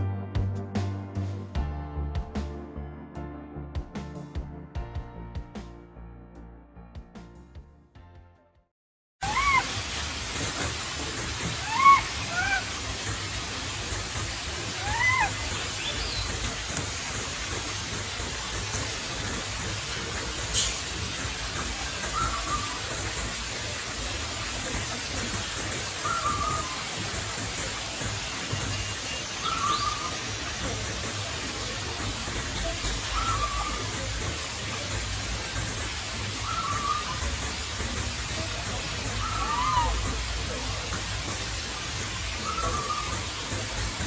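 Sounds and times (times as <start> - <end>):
monkeys squeaking and chirping: 9.2 - 9.8, 11.5 - 12.8, 14.6 - 16.6, 21.9 - 23.1, 26.0 - 27.2, 29.4 - 30.7, 32.3 - 34.4, 36.3 - 37.5, 38.4 - 40.3, 42.4 - 43.6
steady outdoor hiss: 9.2 - 44.0.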